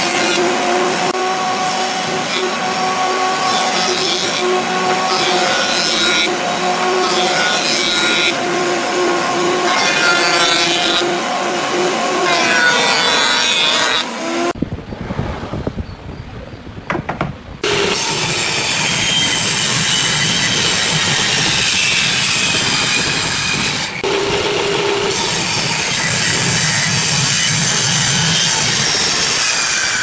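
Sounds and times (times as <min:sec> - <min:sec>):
cutterhead planing wood: 0:00.0 - 0:14.6.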